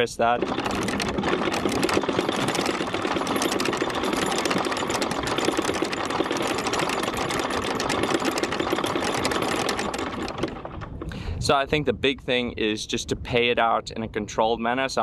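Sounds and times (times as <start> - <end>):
anchor chain clattering: 0.0 - 11.1.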